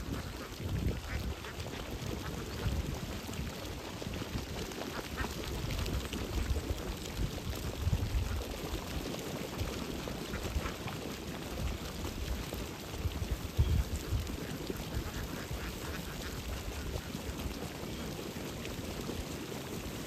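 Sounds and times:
ducks splashing in water: 0.0s - 20.0s
ducks quacking: 13.8s - 17.3s.

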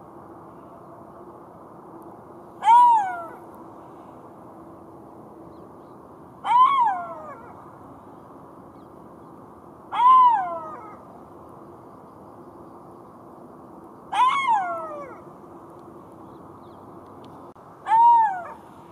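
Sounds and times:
jackal howling: 2.6s - 3.4s, 6.4s - 7.6s, 9.9s - 11.0s, 14.1s - 15.2s, 17.9s - 18.6s.

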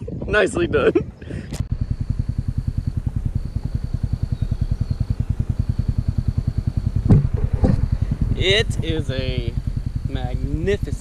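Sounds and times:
vehicle engine idling: 1.4s - 11.0s
knocks: 7.0s - 7.9s.

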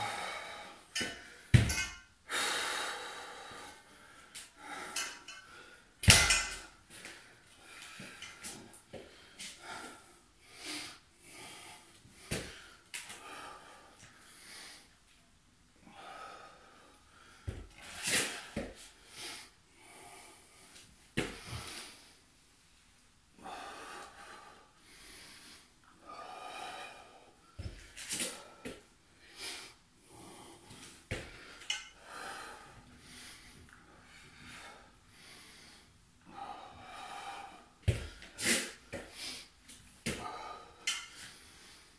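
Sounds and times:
man breathing hard: 0.0s - 15.0s, 23.4s - 41.9s.

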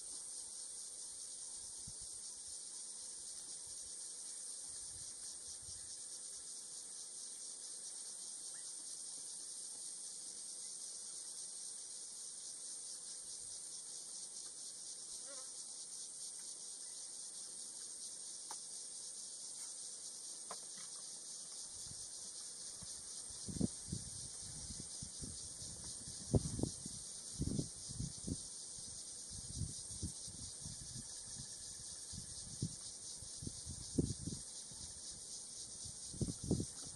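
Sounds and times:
high-pitched insect chorus: 0.0s - 36.9s.

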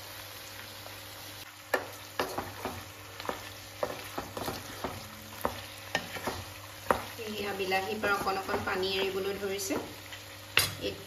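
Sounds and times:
food sizzling in oil: 0.0s - 11.0s
wooden spatula scraping pan: 2.2s - 10.2s.

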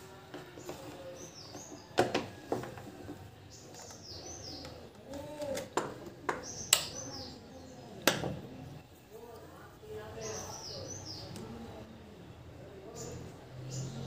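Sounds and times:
small birds chirping: 0.2s - 14.0s.

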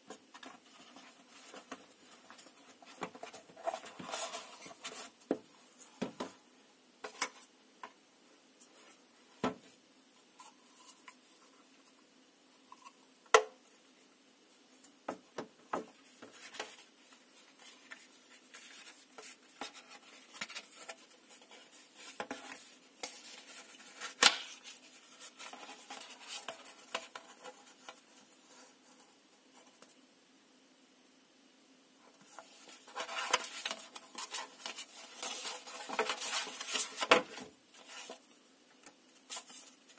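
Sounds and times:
paper rustling: 16.2s - 28.7s, 32.2s - 38.4s.

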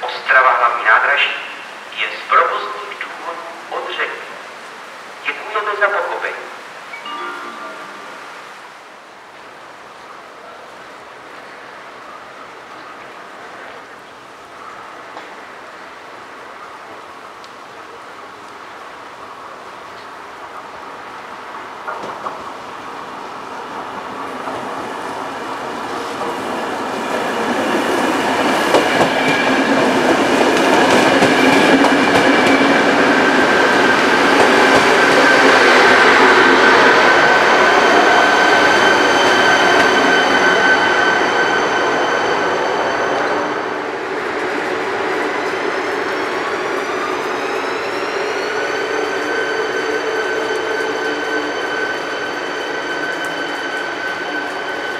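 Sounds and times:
electric train whine: 6.7s - 14.4s, 20.3s - 54.9s
train wheels on rails: 20.8s - 54.9s.

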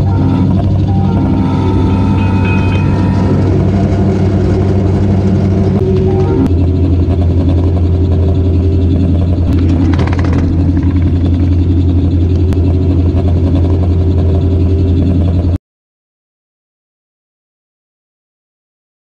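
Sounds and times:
miniature train low drone: 0.0s - 15.6s
brief rattle: 9.5s - 11.6s.

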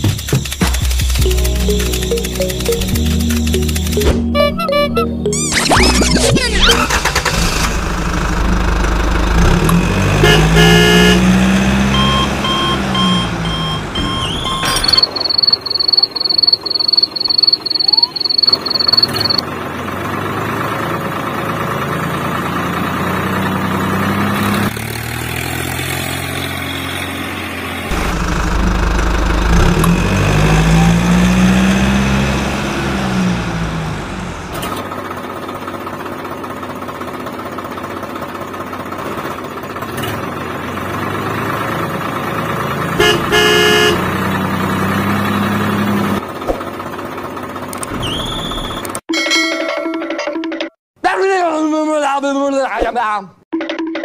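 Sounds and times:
tractor engine revving: 0.0s - 49.0s
rapid regular beeps: 0.2s - 6.6s, 12.0s - 19.4s
horn toots: 10.1s - 13.4s, 43.0s - 44.2s.

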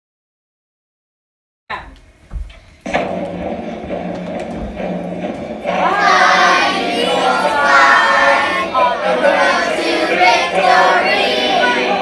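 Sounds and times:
children singing in chorus: 5.7s - 12.0s.

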